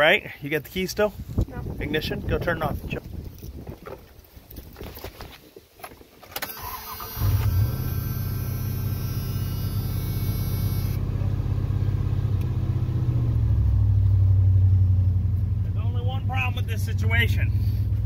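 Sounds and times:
truck engine starting and idling: 0:06.4 - 0:18.0.

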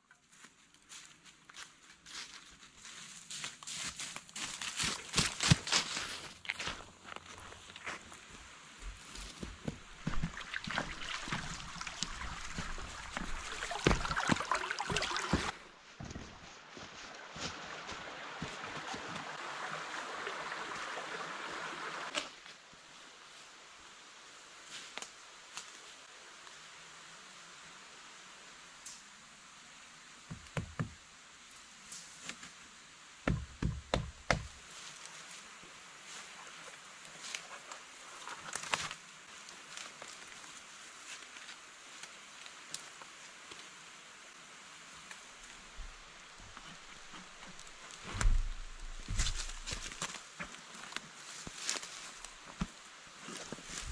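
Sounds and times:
footsteps crunching dry leaves: 0:00.2 - 0:19.2, 0:45.5 - 0:53.9
shallow stream trickling: 0:07.6 - 0:15.8, 0:17.1 - 0:22.4, 0:34.4 - 0:53.9
knocks on a tree trunk: 0:30.3 - 0:31.0, 0:33.2 - 0:34.6.

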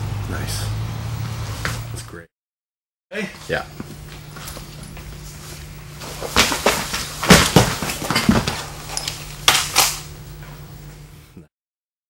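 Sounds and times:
thuds and scuffling knocks: 0:06.0 - 0:08.7.

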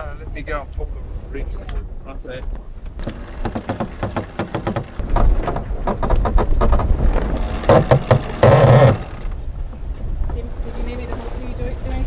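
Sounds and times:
water noise: 0:00.0 - 0:12.0
wind: 0:00.0 - 0:12.0
winch clicking: 0:02.9 - 0:09.4.

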